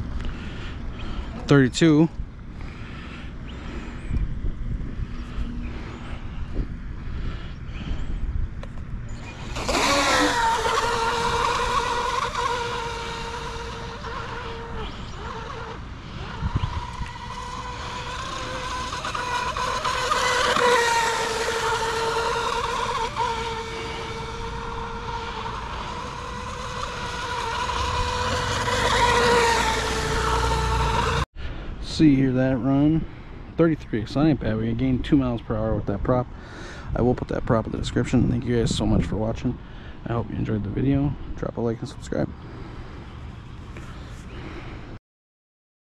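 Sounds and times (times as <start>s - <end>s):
high motor whine: 0.0s - 31.3s.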